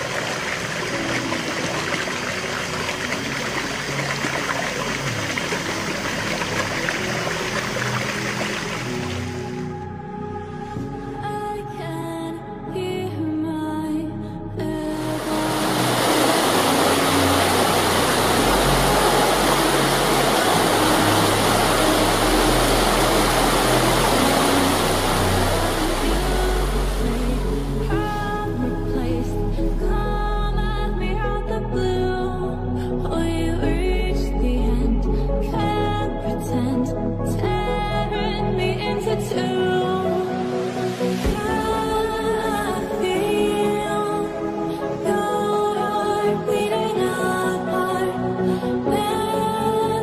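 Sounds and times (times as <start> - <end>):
stream splashing over boulders: 0.0 - 9.6, 15.0 - 27.9
water rushing over rocks: 0.0 - 9.7, 14.9 - 28.6
low bass background music: 0.0 - 50.0.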